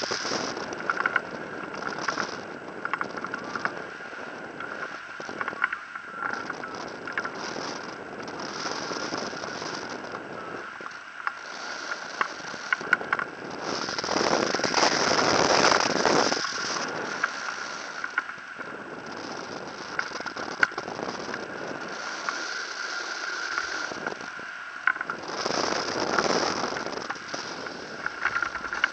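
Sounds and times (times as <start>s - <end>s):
small ticks and rattles: 0.0s - 28.9s
wind rushing: 0.0s - 28.9s
thin steady whistle: 4.6s - 13.2s.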